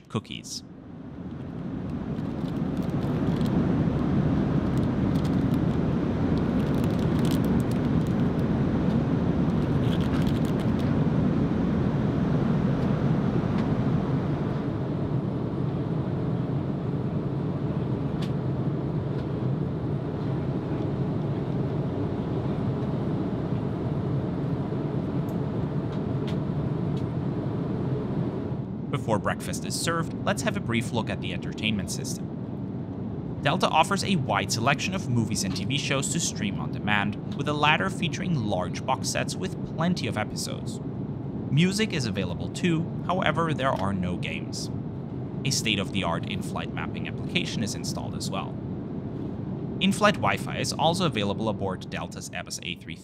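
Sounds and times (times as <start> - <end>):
airliner cabin noise: 0.0 - 53.0
plastic wrappers crinkling: 6.5 - 8.3.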